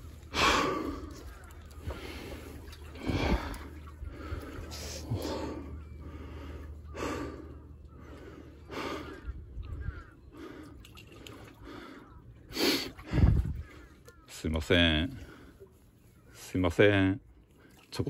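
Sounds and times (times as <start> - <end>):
man breathing hard: 0.2 - 9.4, 10.3 - 13.6.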